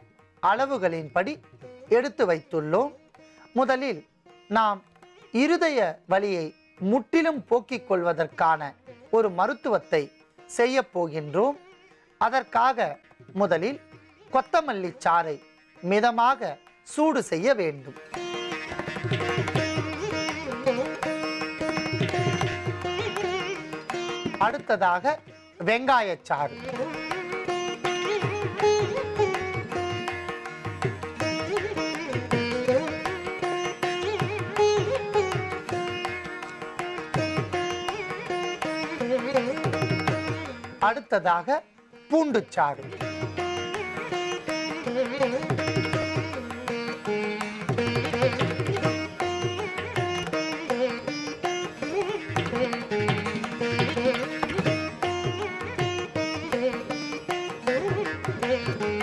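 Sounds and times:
plucked string melody: 0:17.7 - 0:41.0, 0:42.1 - 0:59.0
hand-drum rhythm: 0:18.1 - 0:24.6, 0:26.9 - 0:40.8, 0:42.9 - 0:59.0.

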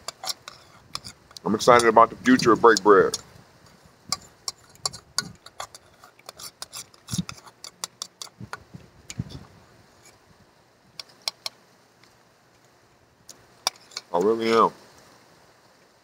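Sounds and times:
small clicks and ticks: 0:04.1 - 0:09.4, 0:11.0 - 0:14.3.

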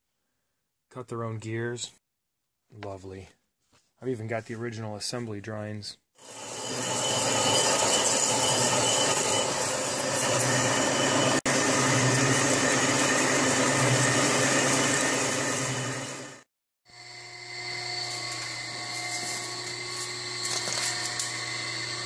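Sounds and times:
lathe machining metal: 0:06.2 - 0:22.0.

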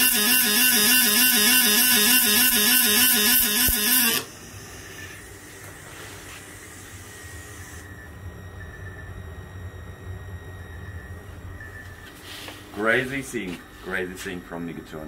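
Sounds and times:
low steady hum: 0:04.2 - 0:15.0.

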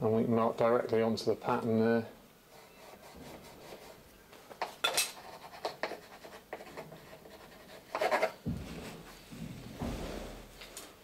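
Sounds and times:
pencil scratching on wood: 0:02.5 - 0:04.0, 0:04.6 - 0:09.0.

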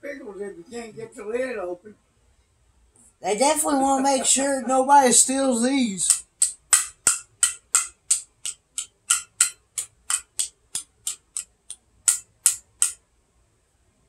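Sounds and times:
tapping on metal jar lid: 0:06.4 - 0:11.5.

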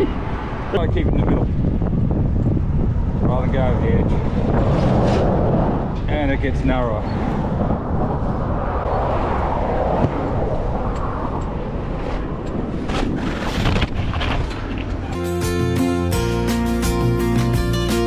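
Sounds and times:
wind buffeting microphone: 0:00.0 - 0:15.2
guitar music: 0:15.1 - 0:18.0.

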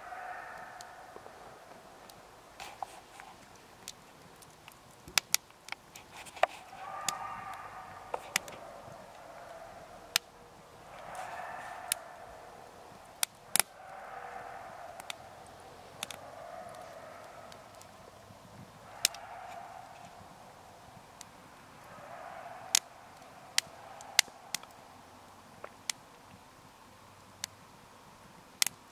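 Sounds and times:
campfire crackling and popping: 0:00.1 - 0:20.3, 0:21.0 - 0:22.9, 0:23.5 - 0:26.4.

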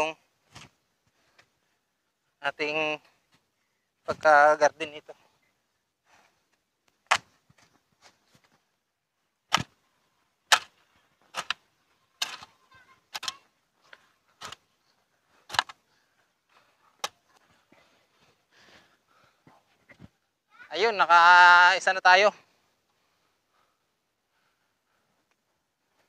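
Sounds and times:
digging tool chopping soil: 0:07.0 - 0:07.4, 0:09.5 - 0:09.8, 0:10.5 - 0:13.4, 0:15.4 - 0:15.8.

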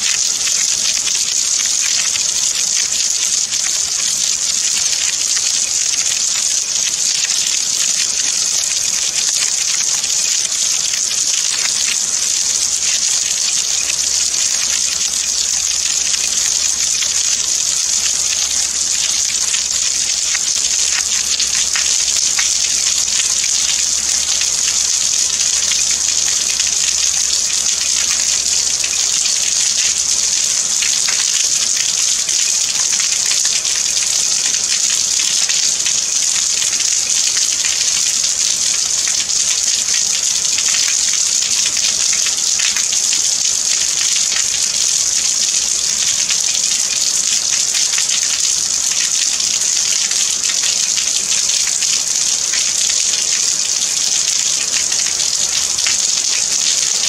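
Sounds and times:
steady rain falling: 0:00.0 - 0:57.0.

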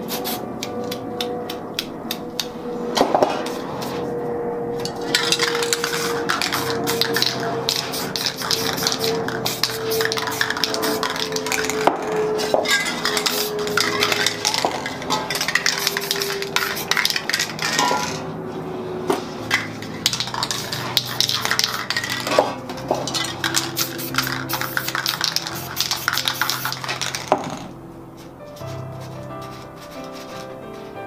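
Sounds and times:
background music: 0:00.0 - 0:31.0
metal spray cans clinking: 0:04.8 - 0:18.3, 0:19.4 - 0:27.7.

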